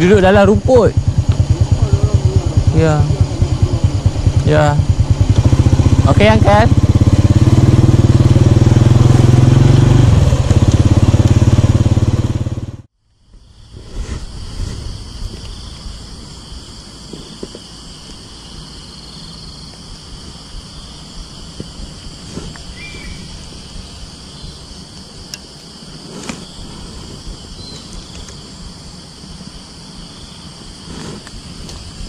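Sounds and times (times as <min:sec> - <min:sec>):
low rumble: 0:00.0 - 0:12.9
insect chorus buzzing: 0:00.0 - 0:32.0.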